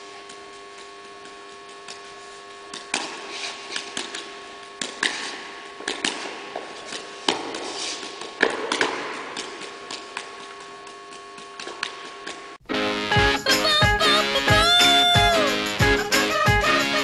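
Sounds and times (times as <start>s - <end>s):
room hum: 0.0s - 17.0s
juggling balls slapping into hands: 2.7s - 12.5s.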